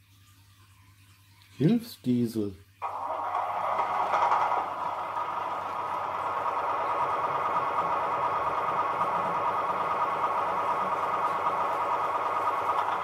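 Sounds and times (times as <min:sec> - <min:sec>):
diesel engine running on small speaker: 0:02.8 - 0:13.0.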